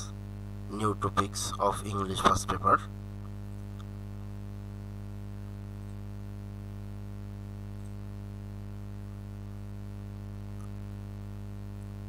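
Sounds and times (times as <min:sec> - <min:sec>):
low electrical hum: 0:00.0 - 0:12.0
faint ticks: 0:03.2 - 0:04.0, 0:05.8 - 0:06.1, 0:07.7 - 0:08.1.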